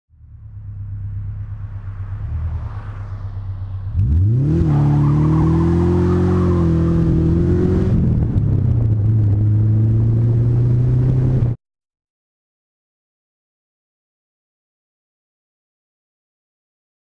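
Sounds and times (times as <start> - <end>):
car engine revving through exhaust: 3.3 - 11.6.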